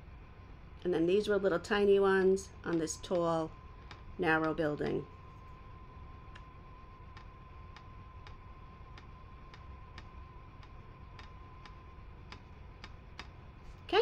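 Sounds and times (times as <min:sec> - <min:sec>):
faint high hum: 0:00.0 - 0:14.0
faint regular ticking: 0:02.7 - 0:04.6, 0:07.1 - 0:14.0.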